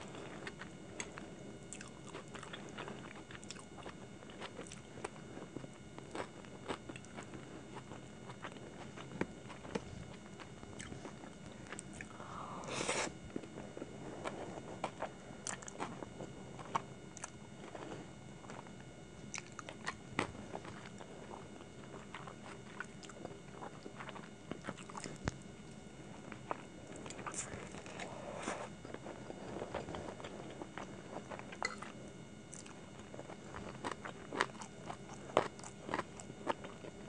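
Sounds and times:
chewing with wet mouth smacks: 0:00.2 - 0:09.8, 0:19.3 - 0:21.1, 0:21.9 - 0:25.4, 0:28.9 - 0:36.9.

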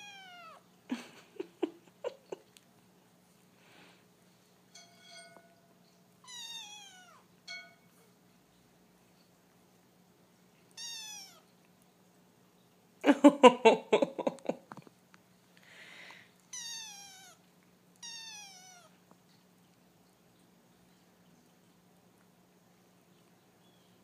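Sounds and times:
kitten mewing: 0:00.0 - 0:00.6, 0:06.2 - 0:07.2, 0:10.7 - 0:11.5, 0:16.5 - 0:17.4, 0:18.0 - 0:19.0.

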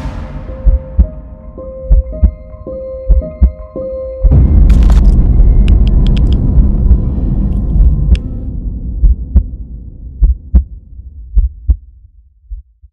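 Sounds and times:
deep rumbling bass hit: 0:00.0 - 0:02.4, 0:04.3 - 0:12.8
low thumps: 0:00.0 - 0:12.9
digital clicks and crackles: 0:04.7 - 0:08.3.

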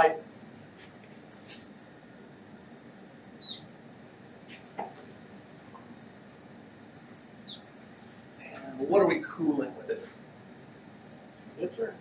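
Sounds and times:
marker squeaking on whiteboard: 0:03.4 - 0:03.7, 0:07.4 - 0:07.7.

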